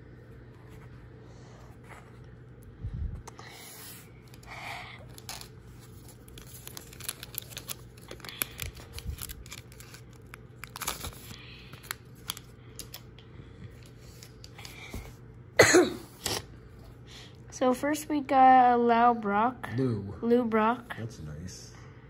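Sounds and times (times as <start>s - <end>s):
card wrapper tearing and crinkling: 4.2s - 13.1s.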